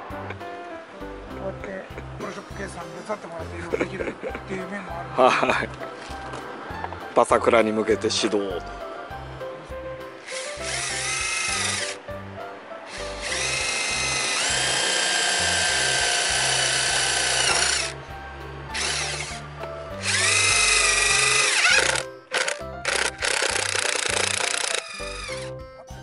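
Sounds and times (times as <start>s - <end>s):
impact driver motor whining: 10.3s - 12.0s, 12.9s - 18.0s, 18.8s - 19.4s, 20.0s - 25.5s.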